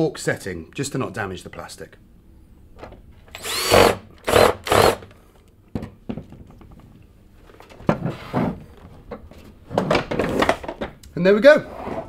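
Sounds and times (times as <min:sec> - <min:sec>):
cordless drill motor whining: 0:03.3 - 0:05.0.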